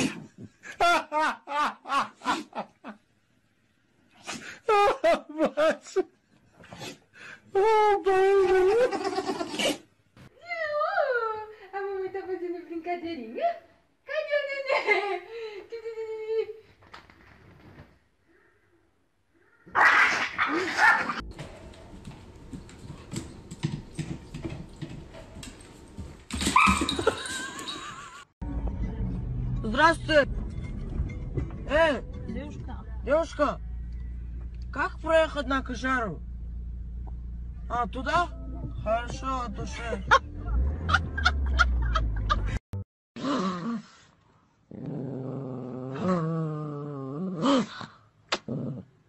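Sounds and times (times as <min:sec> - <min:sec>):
man laughing: 0:00.6 - 0:03.0, 0:04.7 - 0:06.1, 0:07.6 - 0:09.6, 0:39.9 - 0:42.6
car low rumble: 0:28.4 - 0:42.7
dog growling vocalization: 0:44.7 - 0:49.0.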